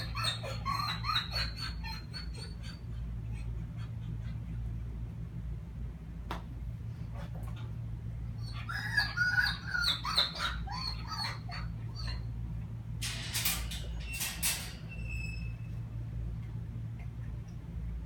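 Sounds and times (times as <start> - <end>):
young dog whining: 0.0 - 4.7, 8.3 - 12.6.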